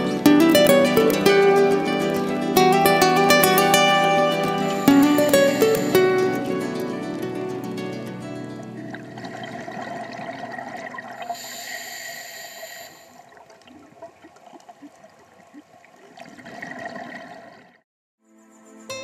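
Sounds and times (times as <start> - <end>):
regulator breathing hiss: 4.4 - 6.2, 11.2 - 13.3
underwater bubbling: 8.6 - 17.8.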